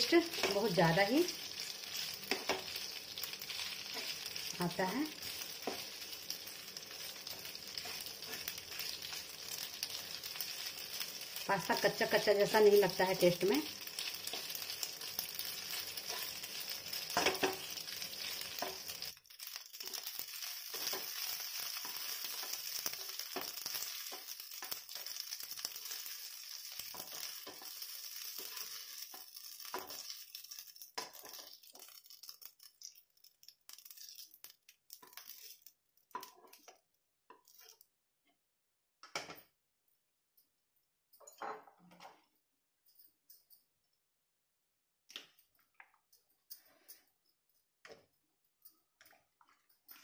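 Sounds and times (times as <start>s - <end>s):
pasta sizzling in oil: 0.0s - 37.9s
spatula stirring and scraping: 0.2s - 11.2s, 13.7s - 37.9s.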